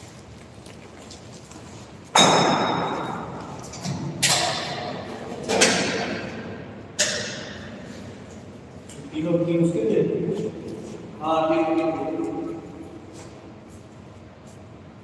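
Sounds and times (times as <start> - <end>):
metallic bangs on steel frame: 2.2 - 7.8.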